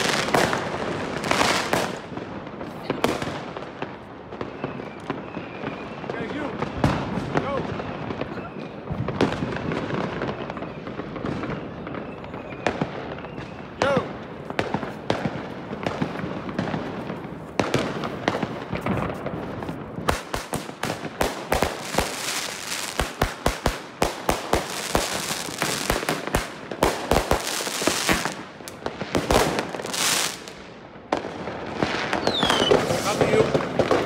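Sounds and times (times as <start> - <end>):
fireworks bangs and crackles: 0.0 - 34.0
firework hissing: 32.2 - 34.0.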